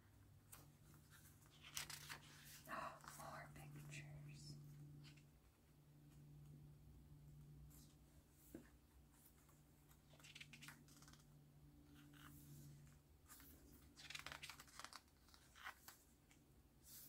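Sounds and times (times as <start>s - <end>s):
low steady hum: 0.0s - 14.2s
pages rustling and flicking: 0.4s - 2.6s, 9.2s - 17.0s.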